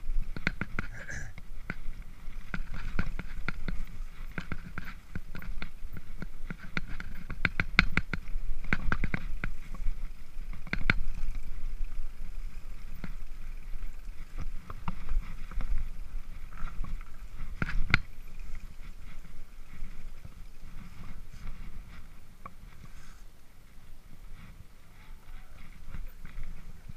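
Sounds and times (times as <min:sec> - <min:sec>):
bike rumbling over rough ground: 0:00.0 - 0:26.9
bike clicks and rattling knocks: 0:00.1 - 0:23.0.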